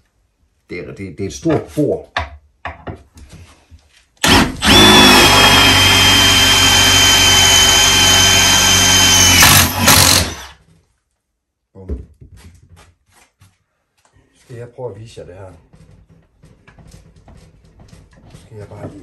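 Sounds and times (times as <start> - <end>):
power drill whining through metal: 4.2 - 10.6.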